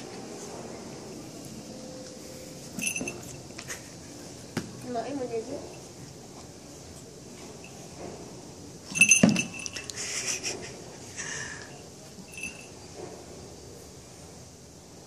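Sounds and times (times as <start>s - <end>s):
small metallic jingling: 2.7s - 3.8s, 7.4s - 10.2s, 12.2s - 13.0s.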